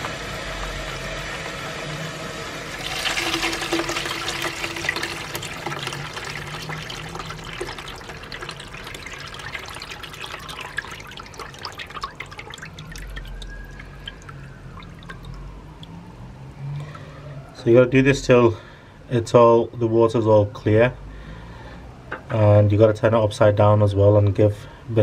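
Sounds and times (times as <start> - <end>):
water pouring into bucket: 2.7 - 16.1.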